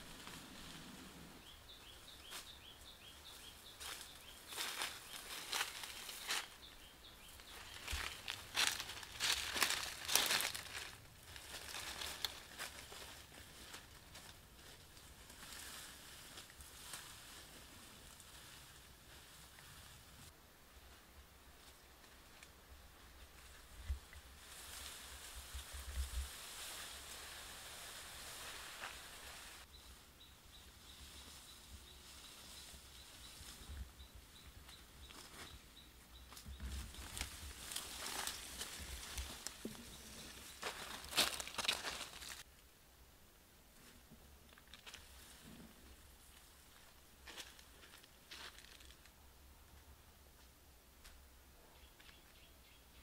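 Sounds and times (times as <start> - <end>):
plant rustling: 0.0 - 20.3, 21.6 - 29.7, 34.4 - 42.5, 43.8 - 49.1
footsteps through grass and leaves: 0.0 - 29.8, 30.9 - 42.5, 43.8 - 49.2.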